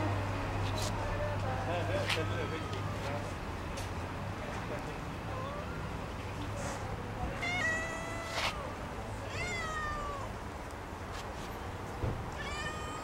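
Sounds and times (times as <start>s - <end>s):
cat meowing: 2.3s - 3.1s, 7.3s - 10.4s, 12.3s - 13.0s.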